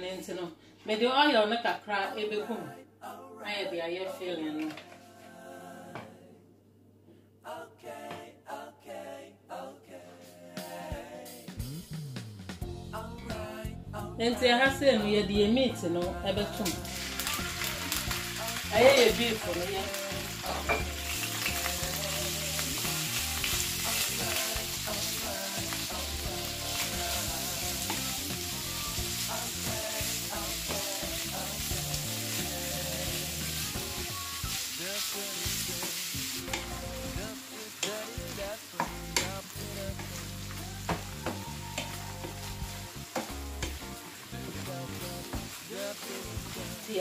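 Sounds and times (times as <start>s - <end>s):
meat sizzling in a frying pan: 16.6s - 47.0s.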